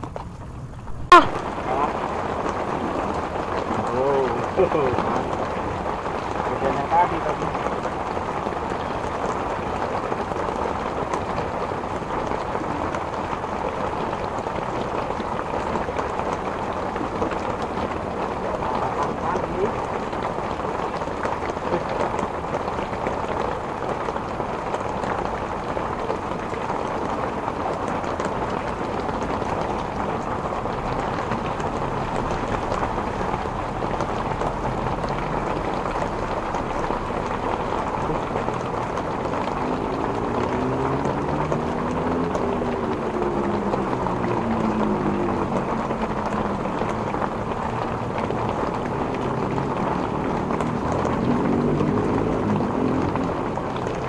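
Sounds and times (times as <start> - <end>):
drizzle falling on water: 0.0 - 54.0
passing engine: 25.6 - 54.0.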